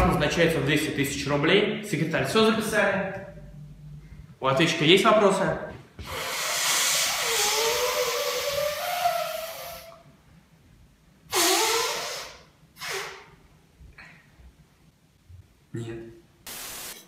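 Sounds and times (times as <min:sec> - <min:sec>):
man blowing nose: 0:06.0 - 0:10.0, 0:11.3 - 0:13.3.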